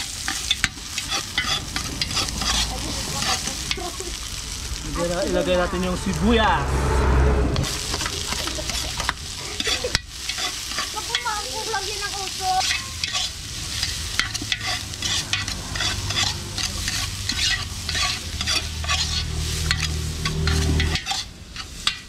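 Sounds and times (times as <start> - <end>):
metal spatula scraping a pot: 0.0 - 4.1, 8.5 - 11.8, 12.6 - 22.0
food sizzling in hot oil: 0.0 - 6.6, 7.6 - 22.0.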